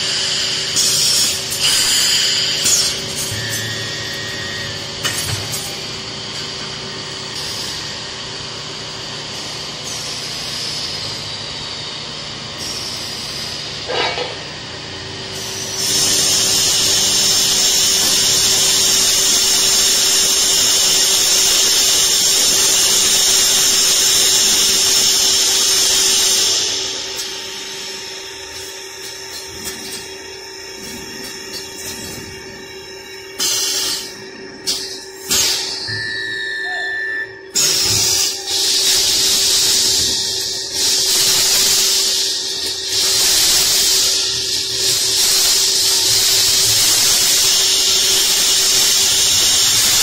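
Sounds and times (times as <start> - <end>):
welding machine hum: 0.0 - 50.0
loud high-pitched hiss: 15.3 - 34.2, 37.5 - 50.0.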